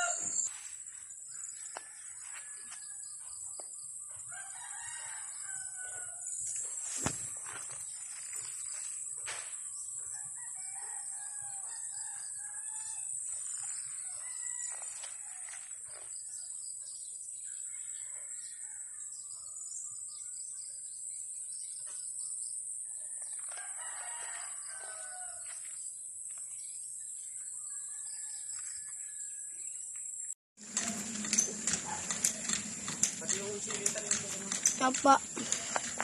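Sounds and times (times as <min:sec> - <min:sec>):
roosters crowing: 0:00.0 - 0:00.5, 0:04.1 - 0:06.4, 0:10.1 - 0:15.8, 0:23.3 - 0:25.5, 0:30.6 - 0:36.0.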